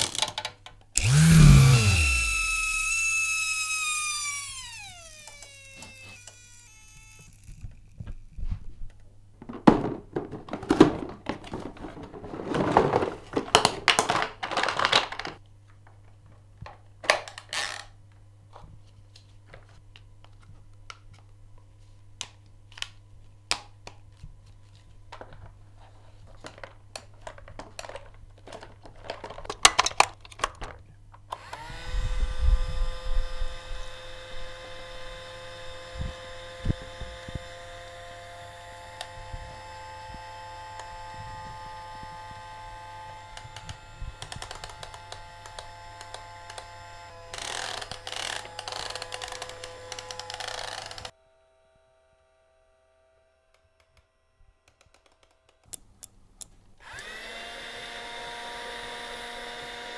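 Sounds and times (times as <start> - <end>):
plastic toy parts clicking: 0.0 - 8.0, 17.0 - 18.0, 26.4 - 31.6, 43.3 - 51.1, 54.7 - 56.6
toy motor whine: 1.0 - 8.0, 31.4 - 51.2, 56.8 - 59.9
toy motor winding down: 1.0 - 8.0, 17.5 - 17.9, 31.3 - 51.2, 56.8 - 59.9.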